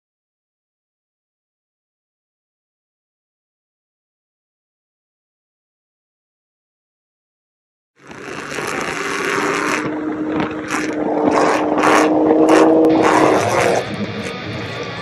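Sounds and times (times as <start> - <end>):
engine drone: 8.0 - 15.0
wind buffeting microphone: 8.0 - 15.0.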